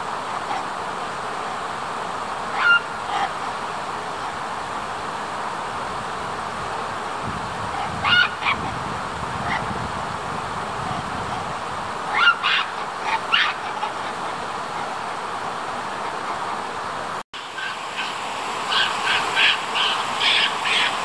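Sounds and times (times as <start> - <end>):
steady background hiss: 0.0 - 21.0
monkeys giving high calls: 2.5 - 3.4, 7.7 - 8.8, 12.1 - 14.9, 17.4 - 21.0.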